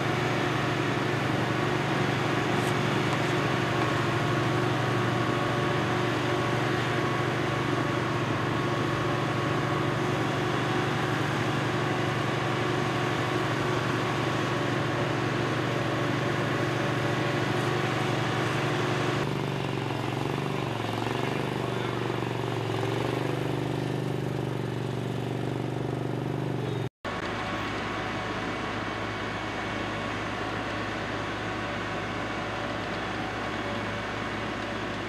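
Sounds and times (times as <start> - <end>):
dump truck tipping asphalt: 0.0 - 19.2
diesel engine running: 0.0 - 35.0.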